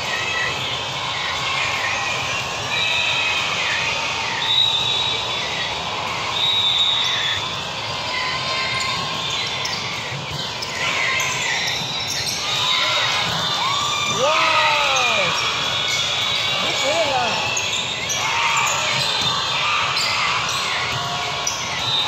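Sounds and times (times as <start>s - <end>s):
busy gym noise: 0.0s - 22.0s
sneaker squeaks: 4.4s - 22.0s
volleyball hits: 9.8s - 22.0s.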